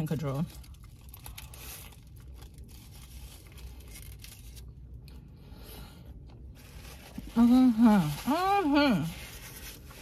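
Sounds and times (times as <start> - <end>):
food packaging crinkling: 0.0 - 5.2
low steady rumble: 0.0 - 10.0.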